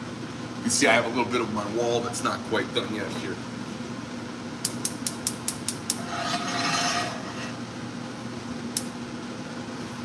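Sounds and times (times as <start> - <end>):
spark igniter clicking: 4.6 - 6.0, 8.7 - 9.0.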